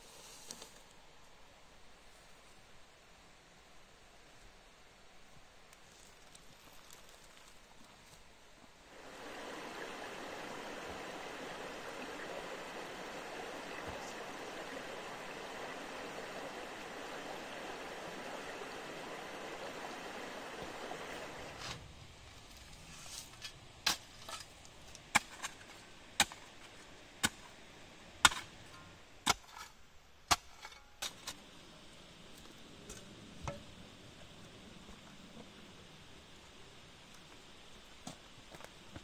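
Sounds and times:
stream rushing: 0:08.8 - 0:21.8.

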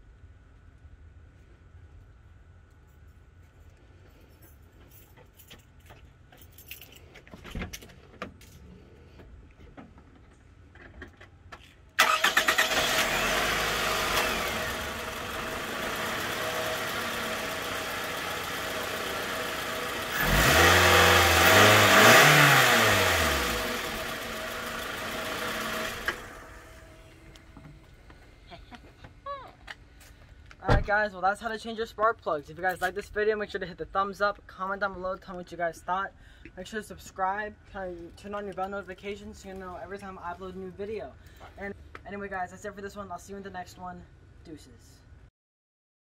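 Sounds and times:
car engine starting and running: 0:12.0 - 0:28.0.

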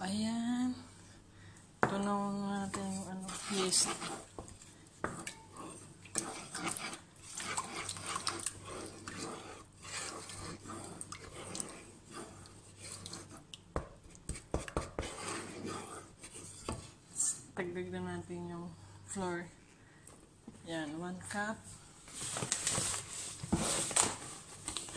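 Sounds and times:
spatula scraping in a bowl: 0:02.6 - 0:13.4, 0:14.3 - 0:17.0.

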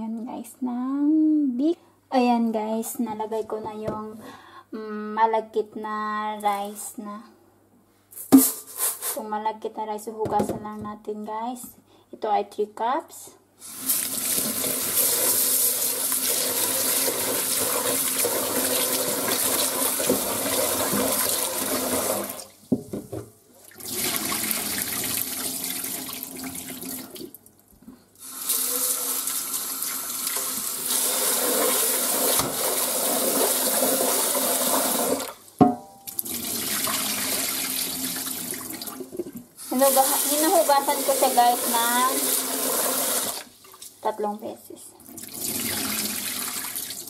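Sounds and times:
rinse water pouring off: 0:13.7 - 0:22.5, 0:23.7 - 0:27.4, 0:28.2 - 0:35.4
tap water running into metal pot: 0:13.8 - 0:22.4, 0:28.2 - 0:43.5.

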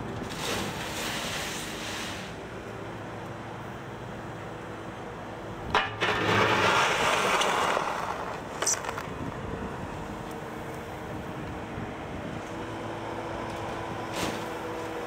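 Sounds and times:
steel bucket scraping gravel: 0:00.3 - 0:02.4, 0:05.7 - 0:09.0
short metal clank: 0:05.7 - 0:06.5.

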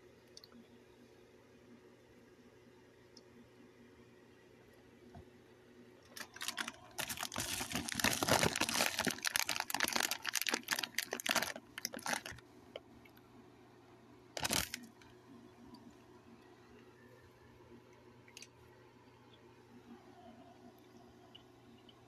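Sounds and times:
rapid rustling crackling clicks: 0:06.0 - 0:12.4, 0:14.4 - 0:15.1.

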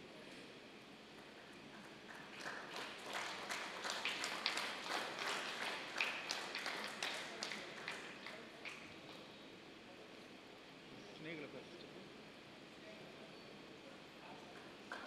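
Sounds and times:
hand clapping: 0:01.8 - 0:08.9.

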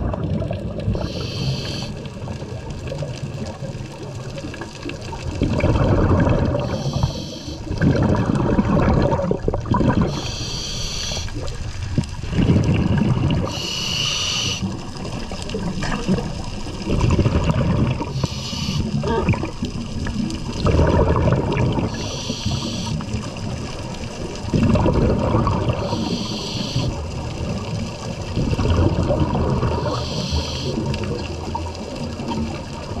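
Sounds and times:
exhaled bubbles gurgling: 0:00.0 - 0:33.0
regulator inhale hiss: 0:01.0 - 0:02.1, 0:06.6 - 0:07.7, 0:10.1 - 0:11.5, 0:13.5 - 0:14.7, 0:18.1 - 0:19.0, 0:21.9 - 0:23.1, 0:25.7 - 0:27.0, 0:29.8 - 0:31.0.

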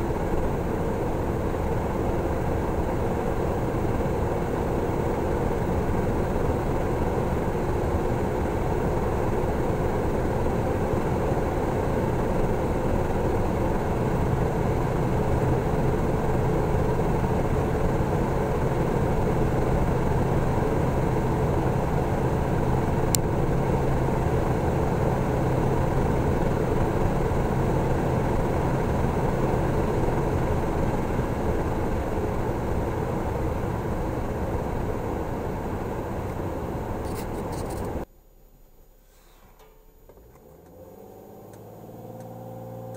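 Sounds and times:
diesel engine drone: 0:00.0 - 0:38.1, 0:39.3 - 0:42.9
road noise: 0:18.1 - 0:38.1.

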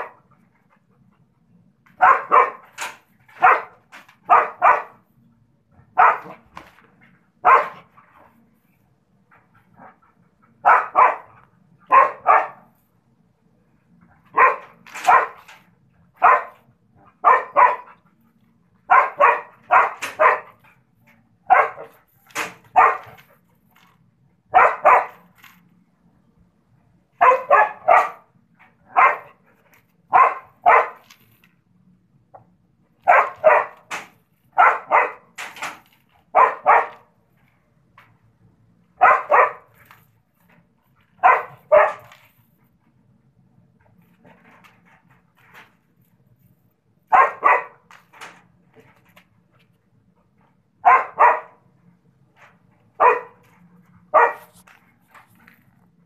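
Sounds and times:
dog barking: 0:02.0 - 0:05.0, 0:05.9 - 0:06.5, 0:07.4 - 0:07.9, 0:10.6 - 0:12.7, 0:14.3 - 0:15.5, 0:16.2 - 0:18.0, 0:18.8 - 0:20.6, 0:21.4 - 0:22.0, 0:22.7 - 0:23.2, 0:24.5 - 0:25.3, 0:27.2 - 0:28.3, 0:28.9 - 0:29.4, 0:30.1 - 0:31.1, 0:33.0 - 0:33.9, 0:34.5 - 0:35.4, 0:36.3 - 0:37.1, 0:39.0 - 0:39.7, 0:41.2 - 0:42.2, 0:47.1 - 0:47.9, 0:50.8 - 0:51.6, 0:53.0 - 0:53.5, 0:54.1 - 0:54.6.

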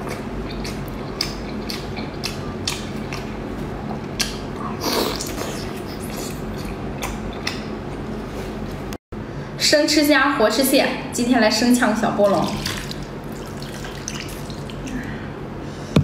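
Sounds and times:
wet chewing and smacking: 0:00.0 - 0:08.1.

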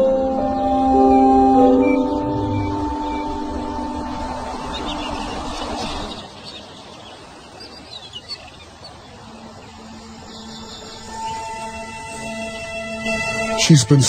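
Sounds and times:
soundtrack music: 0:00.0 - 0:06.1, 0:10.2 - 0:14.0
outdoor bush ambience: 0:00.0 - 0:14.0.

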